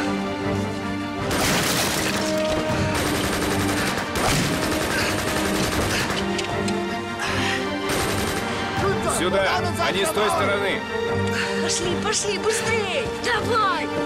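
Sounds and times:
film music with held notes: 0.0 - 14.0
rapid gunfire: 1.3 - 6.3, 7.9 - 8.7.

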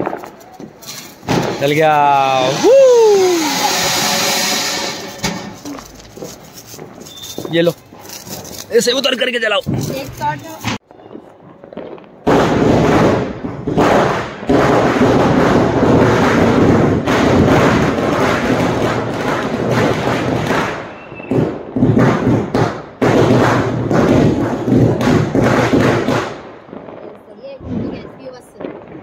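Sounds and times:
firework fountain hissing: 0.0 - 8.8.

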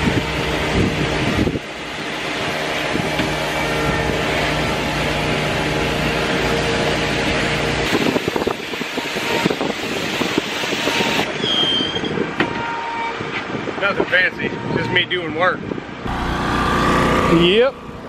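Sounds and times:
pressure washer droning: 0.0 - 11.3, 16.0 - 18.0.

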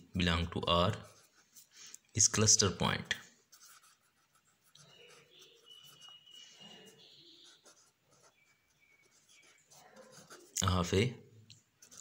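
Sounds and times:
pen scratching on paper: 0.9 - 1.7, 3.5 - 10.6, 11.8 - 12.0.

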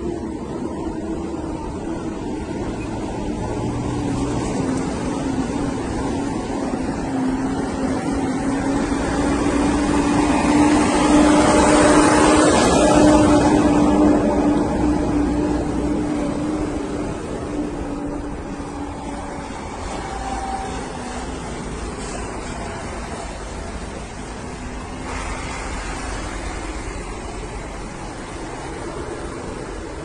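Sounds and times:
truck engines passing: 0.0 - 30.0.

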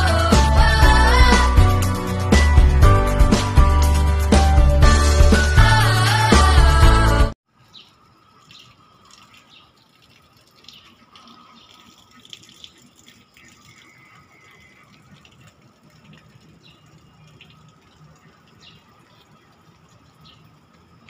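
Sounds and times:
bird chirps: 7.6 - 9.8, 20.2 - 20.6.

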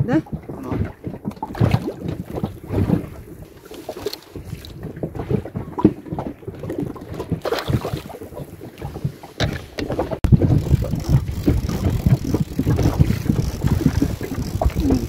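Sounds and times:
wind buffeting microphone: 4.3 - 15.0.

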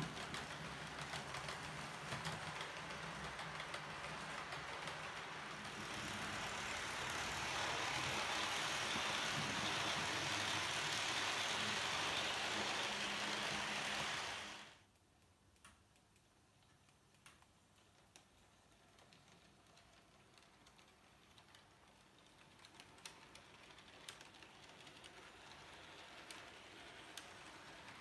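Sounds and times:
model train rolling on track: 0.0 - 14.8, 17.8 - 28.0
small clicks: 14.9 - 27.5.

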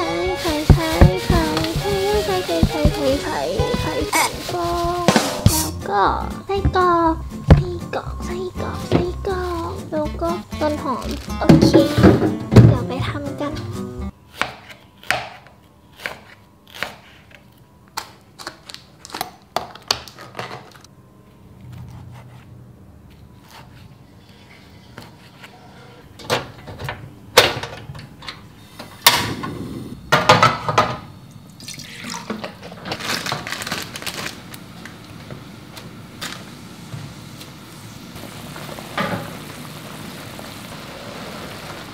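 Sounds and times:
gas stove hissing: 0.0 - 13.8, 26.8 - 31.2, 33.8 - 41.9
knife chopping on plastic board: 0.7 - 3.9.

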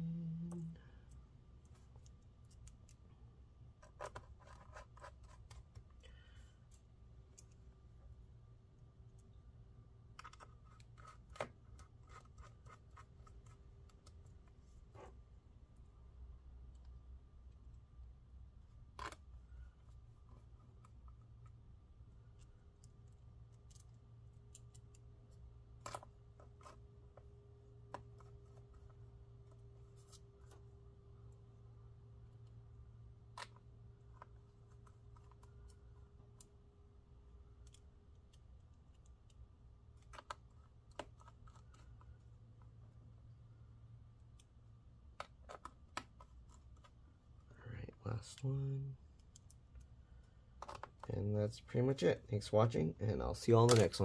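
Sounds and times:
low hum: 0.0 - 3.8
faint steady hum: 0.0 - 54.0.

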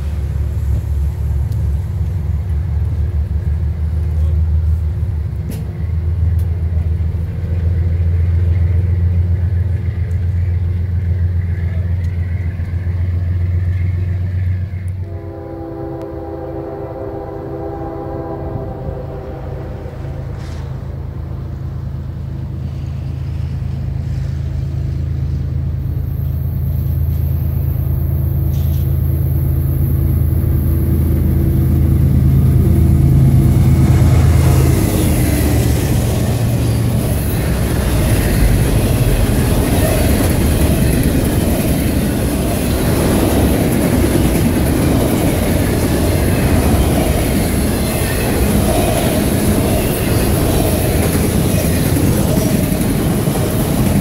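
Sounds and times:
freight train rumbling: 0.0 - 54.0
train cars rumbling on rails: 0.0 - 54.0
locomotive air horn: 15.0 - 20.8.

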